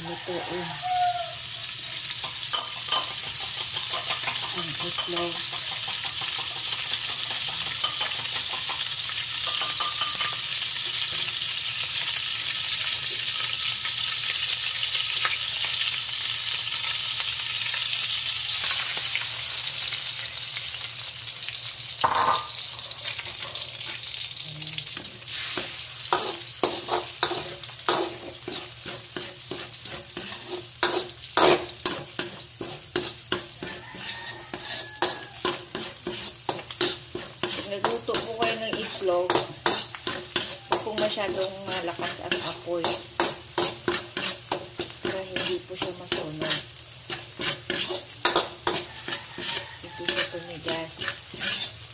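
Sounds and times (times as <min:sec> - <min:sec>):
hot oil sizzling in a wok: 0:00.0 - 0:51.9
spatula scraping a wok: 0:01.6 - 0:10.8, 0:22.0 - 0:51.9.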